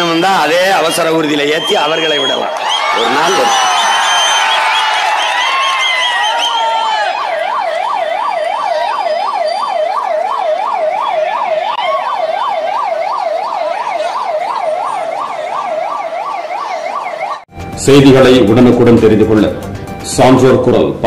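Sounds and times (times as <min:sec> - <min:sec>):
ambulance siren yelping: 0:00.8 - 0:17.5.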